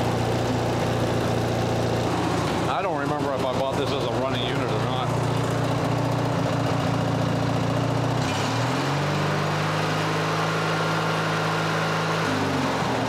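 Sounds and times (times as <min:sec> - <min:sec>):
riding mower engine revving: 0:00.0 - 0:13.0.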